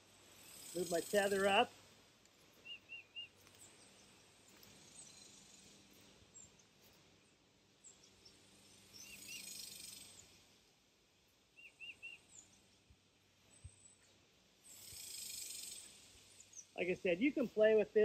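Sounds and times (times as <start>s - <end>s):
soft rustle: 1.6s - 8.3s
faint bird chirps: 2.5s - 10.5s, 11.5s - 16.8s.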